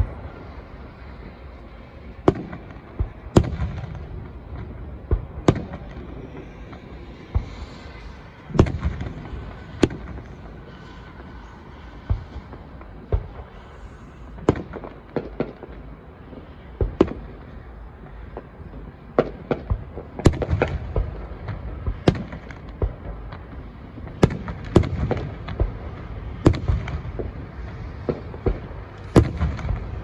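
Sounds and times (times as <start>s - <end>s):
fireworks booming: 0.0s - 30.0s.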